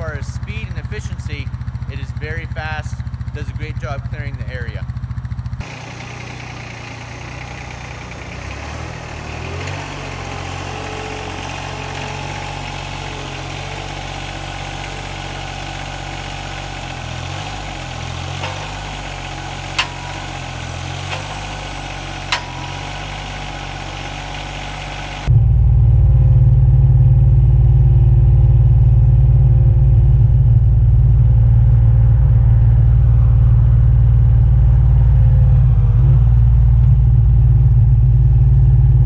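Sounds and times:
tractor engine idling: 0:00.0 - 0:25.3.

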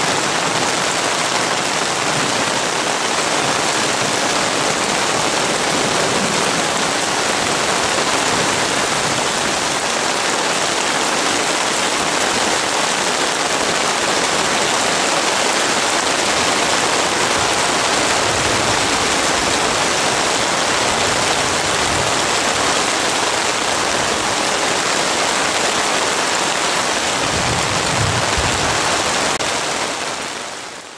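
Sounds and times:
heavy rain on a lake: 0:00.0 - 0:30.9
low thunder rumbles: 0:27.2 - 0:29.3.

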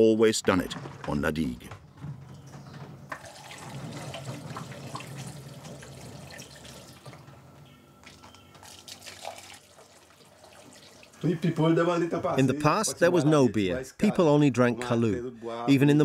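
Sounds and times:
liquid pouring into a jug: 0:03.1 - 0:07.2, 0:08.6 - 0:11.3.

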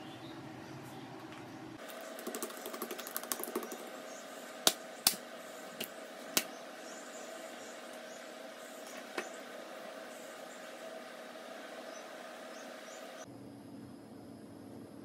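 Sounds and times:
dough sheet sharp clicks: 0:04.7 - 0:05.2.

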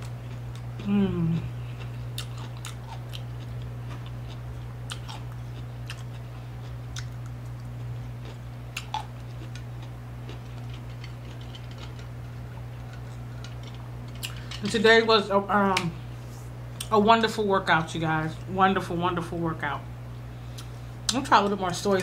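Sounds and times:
person chewing food: 0:00.0 - 0:14.6
steady low hum: 0:00.0 - 0:22.0.

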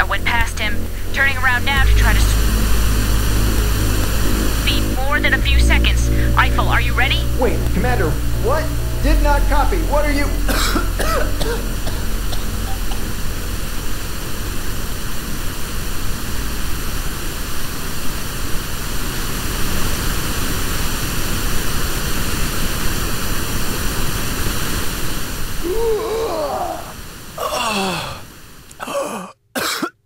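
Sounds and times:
low rumble: 0:00.0 - 0:18.2
steady rushing noise: 0:00.0 - 0:25.7.

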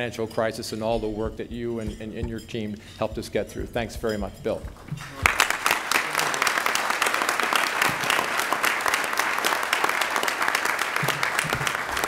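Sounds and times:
audience applause: 0:05.0 - 0:12.0.

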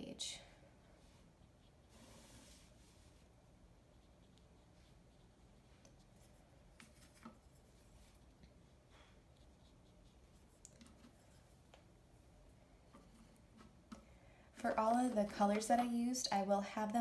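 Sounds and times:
paintbrush stroking paper: 0:00.8 - 0:11.7.

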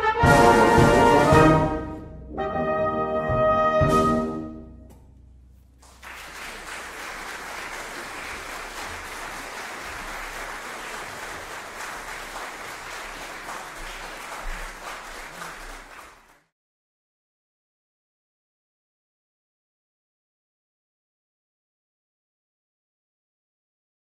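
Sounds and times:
audience applauding: 0:05.8 - 0:16.5.

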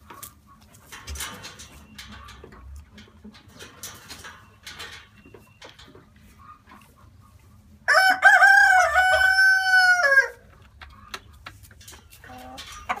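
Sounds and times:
rooster crowing: 0:07.9 - 0:10.4.

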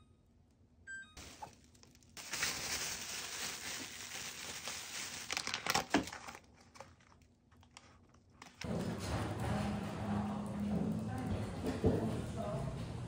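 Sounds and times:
plastic wrap crinkling: 0:01.2 - 0:08.6.

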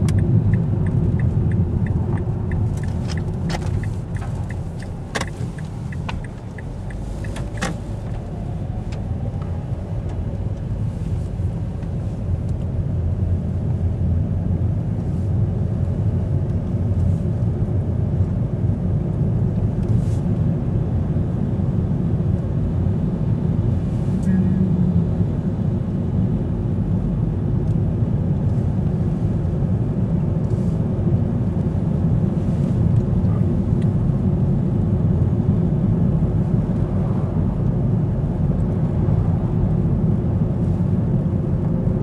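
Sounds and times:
car road rumble inside cabin: 0:00.0 - 0:42.0
faint regular ticking: 0:00.1 - 0:07.8.

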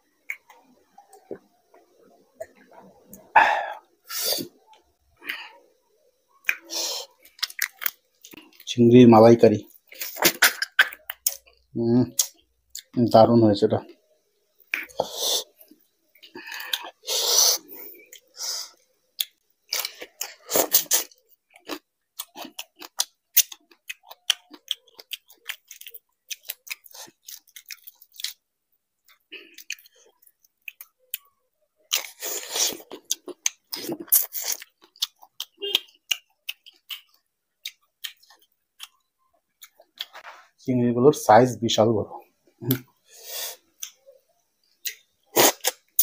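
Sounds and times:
loud eating sounds: 0:06.4 - 0:08.7, 0:14.6 - 0:28.4, 0:29.0 - 0:40.2, 0:42.6 - 0:46.0
wet chewing clicks and smacks: 0:06.4 - 0:08.7, 0:19.2 - 0:28.4, 0:29.0 - 0:40.2, 0:44.8 - 0:46.0.

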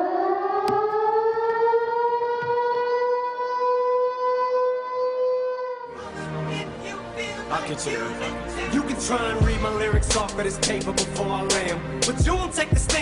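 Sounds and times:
air-raid siren: 0:00.0 - 0:06.0
dance music: 0:05.9 - 0:13.0.

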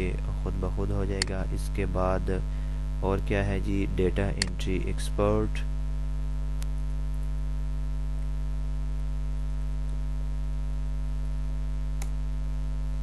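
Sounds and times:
electrical mains hum: 0:00.0 - 0:13.0
faint click: 0:12.0 - 0:12.2.

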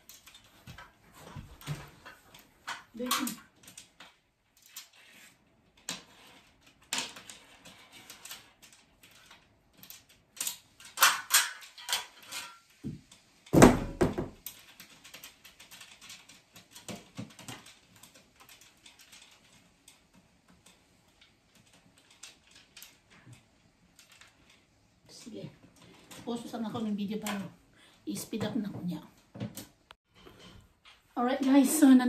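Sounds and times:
metal parts clicking and rattling: 0:00.0 - 0:13.5, 0:14.4 - 0:27.6
heavy thump: 0:13.6 - 0:14.4.

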